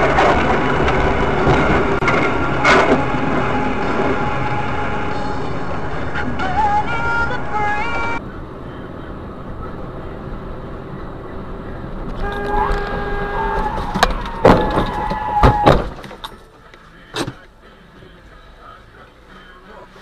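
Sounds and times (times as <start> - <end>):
car road and engine noise: 0.0 - 20.0
car horn blasts: 12.1 - 15.9.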